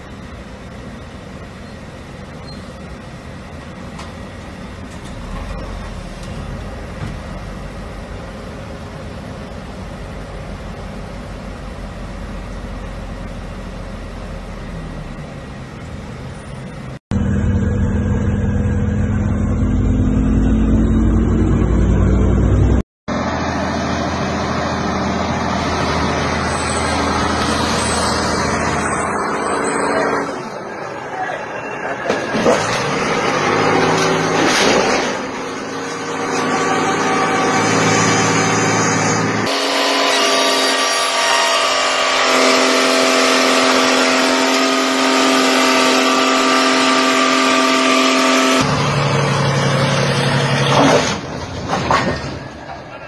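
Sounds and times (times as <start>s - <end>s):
truck engine running: 0.0s - 30.8s, 41.6s - 51.7s
engine-like hum: 0.0s - 53.0s
loud noise: 23.1s - 51.4s.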